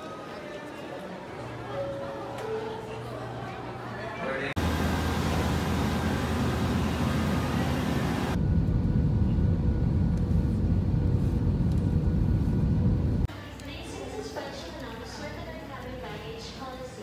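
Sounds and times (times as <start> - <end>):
jet cabin low rumble: 4.6 - 13.3.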